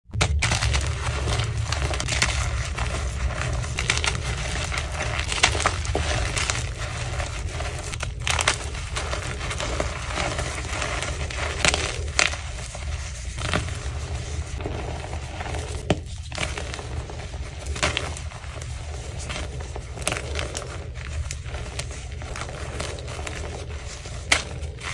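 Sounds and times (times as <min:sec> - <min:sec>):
chalk crunching and crumbling: 0:00.1 - 0:24.9
low steady hum: 0:00.1 - 0:24.9.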